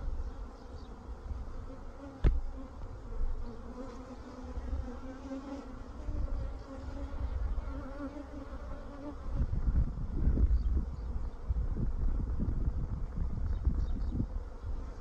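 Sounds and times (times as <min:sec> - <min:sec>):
bees buzzing: 0:00.0 - 0:09.6.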